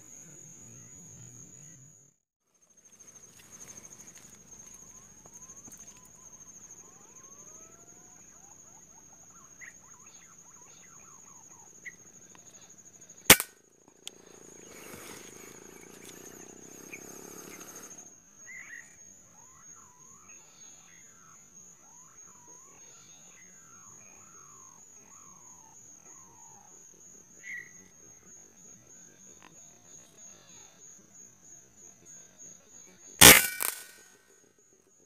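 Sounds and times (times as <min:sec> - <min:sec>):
high insect buzz: 0:11.9 - 0:19.0
rifle shot: 0:33.2 - 0:34.1.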